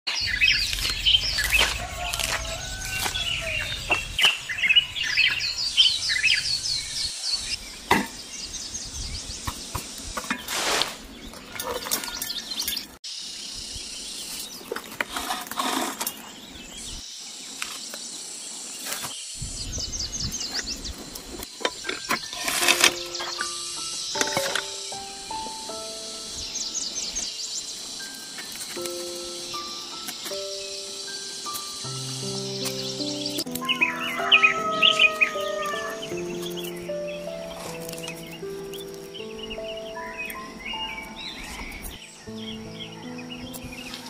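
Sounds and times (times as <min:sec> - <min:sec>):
small birds chirping: 0:00.1 - 0:44.0
chopstick raking soil: 0:00.4 - 0:04.4, 0:09.9 - 0:12.8, 0:14.3 - 0:16.4, 0:21.4 - 0:25.6, 0:28.0 - 0:39.3.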